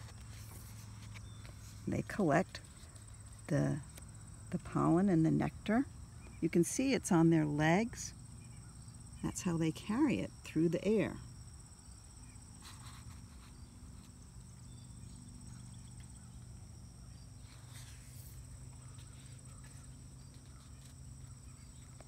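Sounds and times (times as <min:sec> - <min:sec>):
paper pages rustling: 0:00.0 - 0:01.8
faint crickets chirring: 0:00.0 - 0:22.0
low steady hum: 0:00.0 - 0:22.0.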